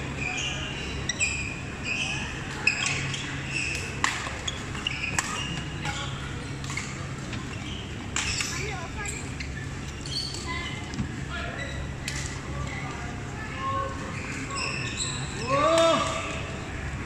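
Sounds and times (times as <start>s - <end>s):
murmur of voices: 0.0s - 17.0s
shoes squeaking on court floor: 0.1s - 12.3s, 14.1s - 15.5s.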